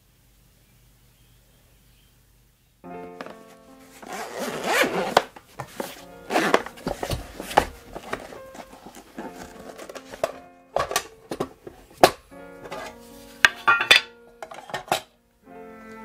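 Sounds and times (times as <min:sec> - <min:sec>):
background music: 0:02.8 - 0:16.0
zipper rasping open: 0:04.0 - 0:05.3, 0:06.3 - 0:10.2.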